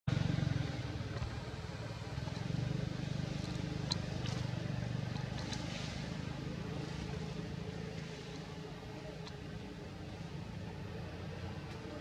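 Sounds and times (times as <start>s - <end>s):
small engine humming: 0.1s - 12.0s.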